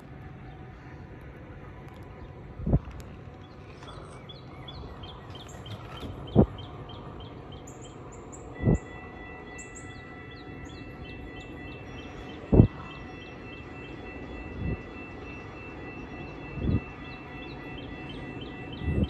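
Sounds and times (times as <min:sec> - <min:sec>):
small birds chirping: 0:03.4 - 0:15.0
thin steady high tone: 0:07.0 - 0:19.0.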